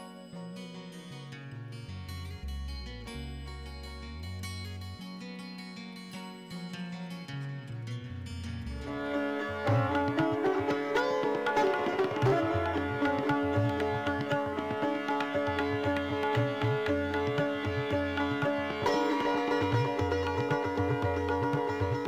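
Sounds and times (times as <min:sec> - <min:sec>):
sustained instrumental notes: 0:02.2 - 0:05.0.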